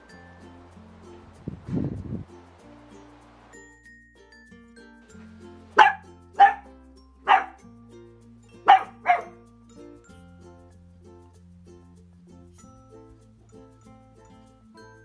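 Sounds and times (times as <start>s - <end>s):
quiet background music: 2.2s - 15.0s
puppy barking: 5.8s - 6.7s, 7.3s - 7.6s, 8.6s - 9.4s.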